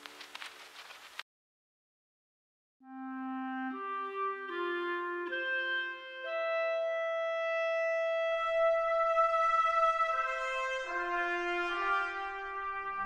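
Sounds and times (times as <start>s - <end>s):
slow brass music: 2.8s - 13.0s.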